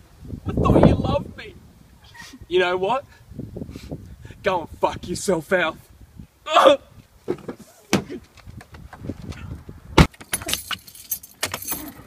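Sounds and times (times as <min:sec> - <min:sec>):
keys jangling: 0:10.2 - 0:12.0.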